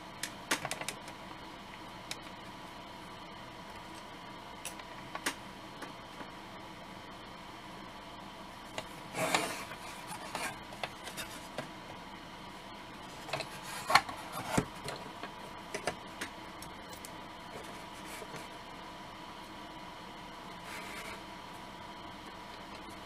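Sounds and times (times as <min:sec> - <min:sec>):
brush scraping plastic: 0:09.1 - 0:11.6, 0:13.1 - 0:14.8, 0:17.6 - 0:18.5.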